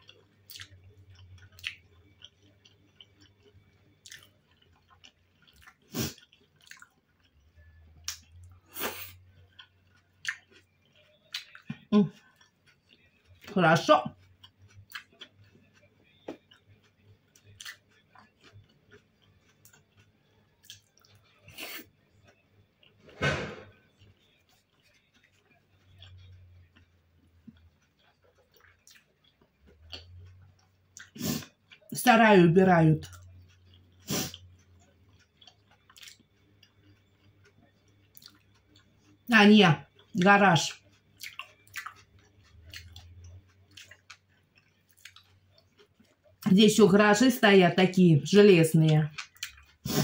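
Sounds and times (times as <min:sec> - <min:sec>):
close-up chewing: 0:00.0 - 0:23.1, 0:23.7 - 0:46.5, 0:48.8 - 0:50.0
dumpling being bitten: 0:14.3 - 0:23.0, 0:40.7 - 0:46.4
wet mouth clicks: 0:41.2 - 0:44.2.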